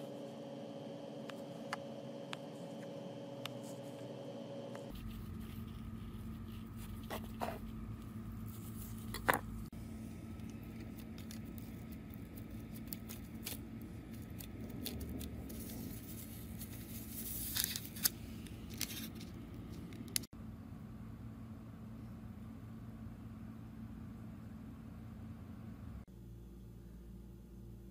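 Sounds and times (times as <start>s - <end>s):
steady low hum: 0.0s - 27.9s
hands working dough: 4.8s - 20.3s.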